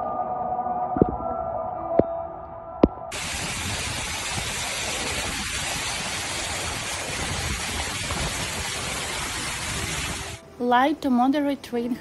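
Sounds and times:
floodwater rushing: 3.1s - 10.4s.

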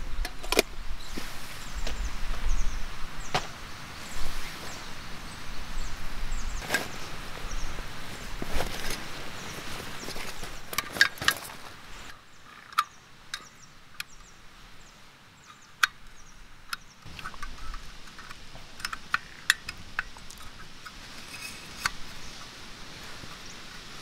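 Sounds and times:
camping stove metallic clicks: 15.4s - 22.0s.

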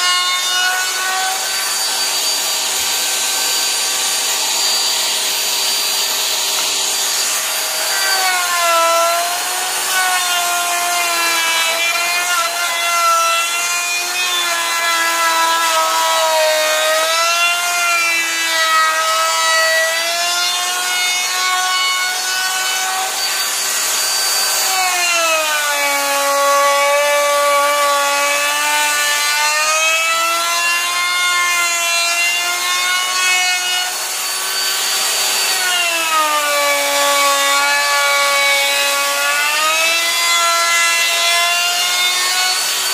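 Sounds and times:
router motor whine: 0.0s - 17.6s, 18.2s - 29.4s.

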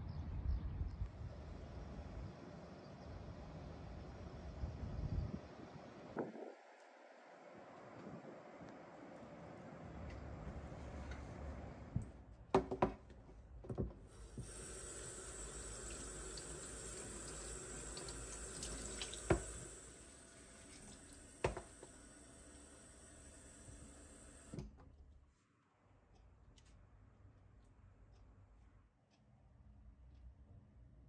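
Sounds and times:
faucet running into sink: 14.1s - 24.5s.

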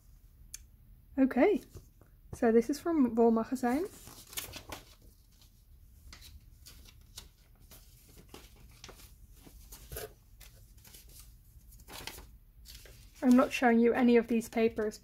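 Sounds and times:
paper rustling and crinkling: 3.7s - 15.0s.

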